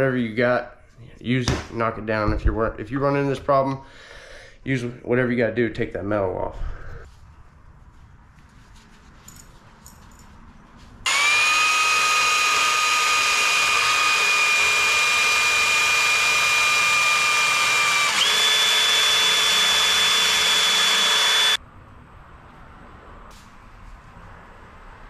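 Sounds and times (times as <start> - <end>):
cordless drill grinding whine: 11.1 - 21.6.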